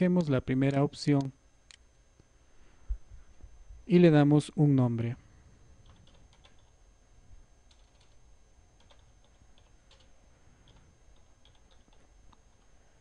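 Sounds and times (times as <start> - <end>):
low steady hum: 0.0 - 13.0
keyboard typing: 5.8 - 6.8, 7.7 - 8.2, 8.8 - 12.7.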